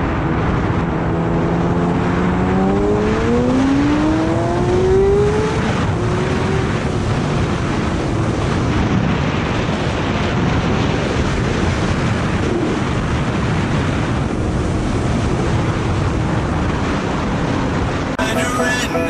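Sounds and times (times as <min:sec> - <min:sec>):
wind rush on microphone: 0:00.0 - 0:18.2
electronic music: 0:18.2 - 0:19.0.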